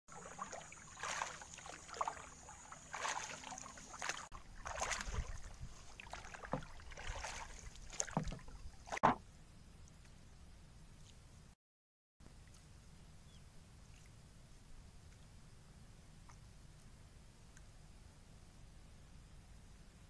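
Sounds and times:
paddle splashing in water: 0.1 - 9.2.

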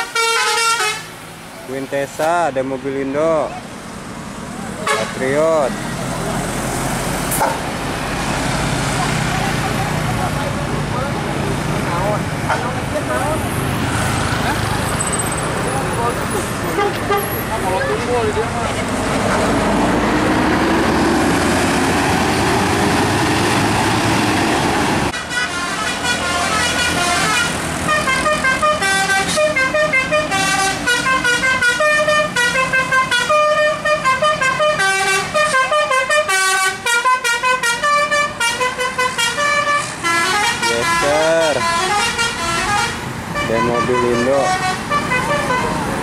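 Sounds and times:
musical bus horn: 0.0 - 1.2, 4.8 - 5.3, 25.1 - 46.0
bus engine passing: 0.0 - 46.0.

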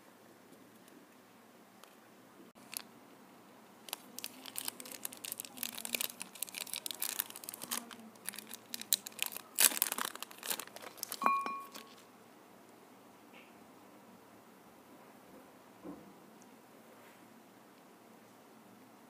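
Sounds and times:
plastic wrapper crinkling and tearing: 2.6 - 2.9, 3.8 - 12.0.

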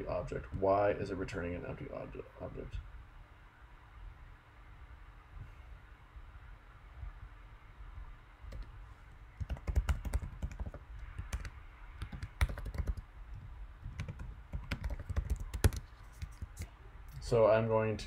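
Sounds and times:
typing on keyboard: 9.4 - 13.0, 13.8 - 16.5.

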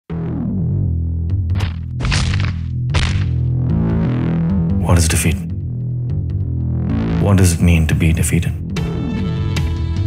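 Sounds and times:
low bass drone: 0.1 - 7.3.

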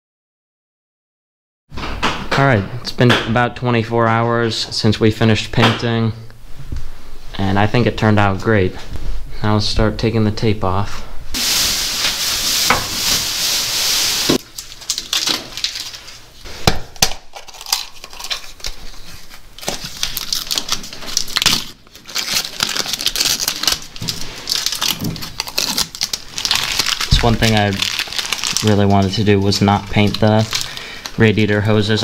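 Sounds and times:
tape ripping and tearing: 11.4 - 16.2, 17.0 - 30.8
tape crinkling: 11.4 - 16.4, 17.1 - 31.8.

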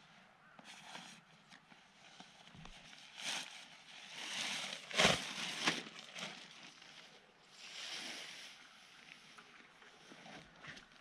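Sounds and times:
plastic tarp rustling: 2.9 - 7.1
loud tarp crackle: 3.0 - 7.1.

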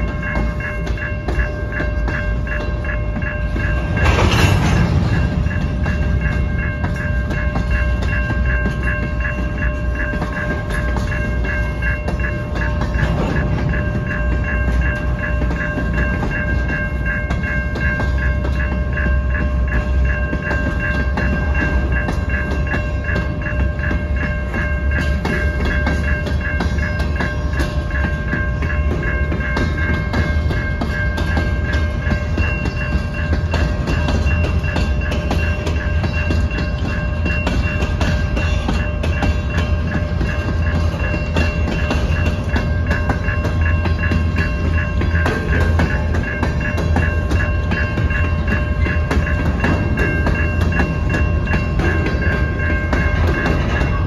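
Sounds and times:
crossing signal bell ringing: 0.0 - 54.0
wheels rumbling on rail: 0.0 - 54.0.

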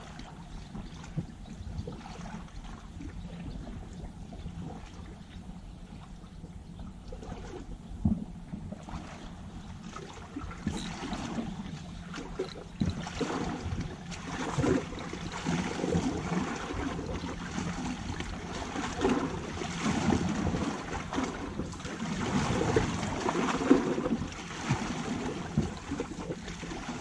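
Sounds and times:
sea waves washing: 8.8 - 27.0.

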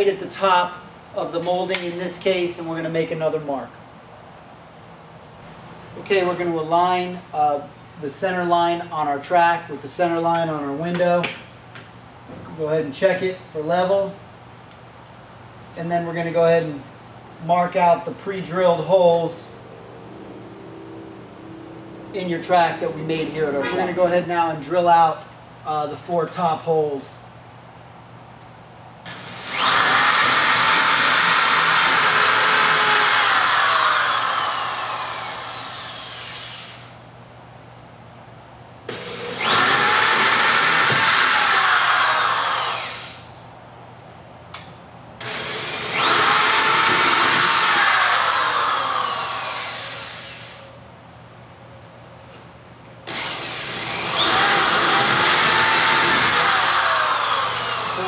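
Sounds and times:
electric drill boring into wood: 29.1 - 36.9, 38.9 - 43.2, 45.2 - 50.6, 53.1 - 58.0.

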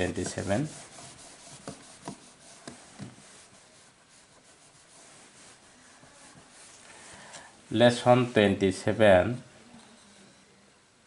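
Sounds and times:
whiteboard being wiped: 0.0 - 7.3.

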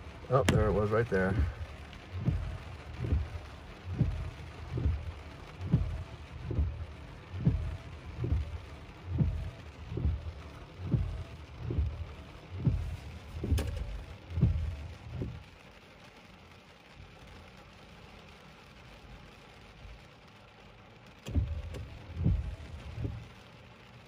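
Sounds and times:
heavy rain hiss: 0.0 - 24.0
windshield wiper thumps: 0.3 - 15.6, 21.2 - 23.4.

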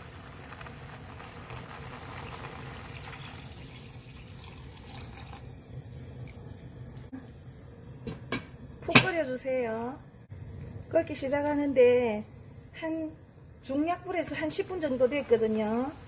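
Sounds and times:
water pouring into pot: 0.0 - 7.1.

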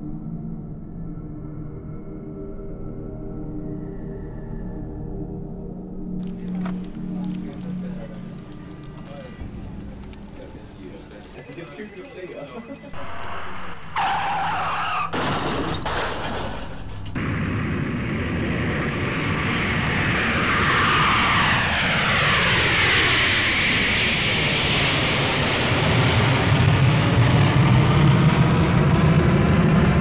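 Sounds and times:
jet airliner engines whining: 6.2 - 30.0.

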